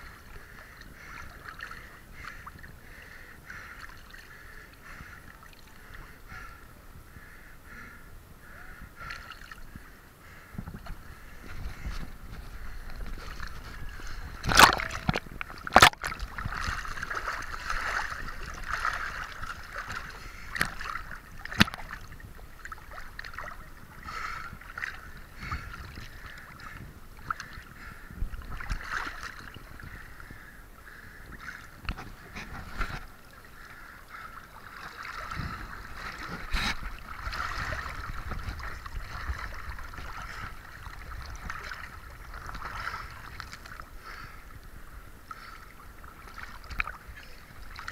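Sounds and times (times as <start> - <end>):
water sloshing and splashing: 10.6 - 30.4, 31.2 - 44.2, 45.3 - 47.9.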